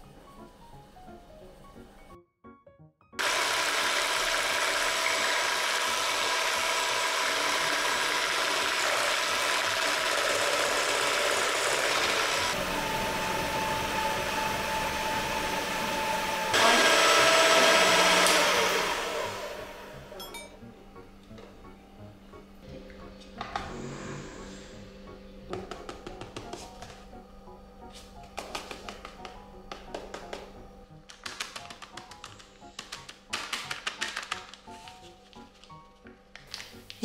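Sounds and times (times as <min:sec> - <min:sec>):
electric hand mixer whirring: 0:03.2 - 0:20.2.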